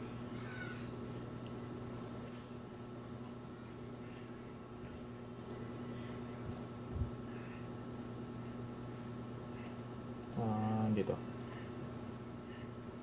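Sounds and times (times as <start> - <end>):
low electrical hum: 0.0 - 13.0
computer mouse clicks: 5.4 - 5.6, 6.5 - 6.7, 9.6 - 10.4, 11.4 - 12.2.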